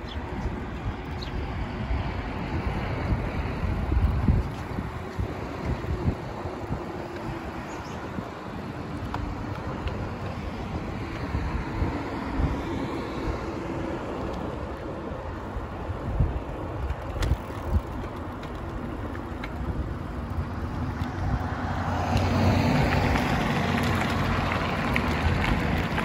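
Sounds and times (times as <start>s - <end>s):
bicycle tyres rolling on pavement: 0.0s - 26.0s
wind on microphone: 0.0s - 26.0s
tyres crunching over gravel: 16.8s - 26.0s.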